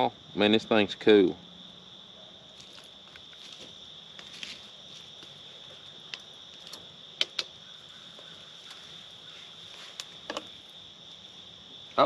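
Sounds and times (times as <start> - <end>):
crickets trilling: 0.0 - 12.0
campfire popping: 2.6 - 11.5.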